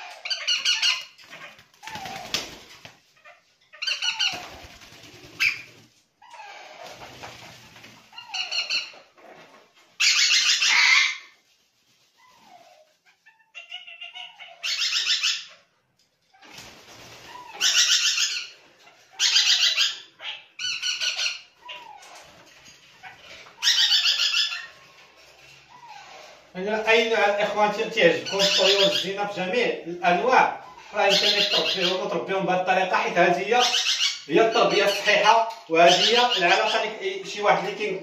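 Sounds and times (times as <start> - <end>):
parrots harsh begging calls: 0.0 - 2.5, 3.2 - 4.6, 8.1 - 9.0, 10.0 - 11.4, 12.5 - 15.7, 17.1 - 22.3, 23.0 - 24.8, 27.2 - 29.5, 30.1 - 32.1, 32.9 - 37.1.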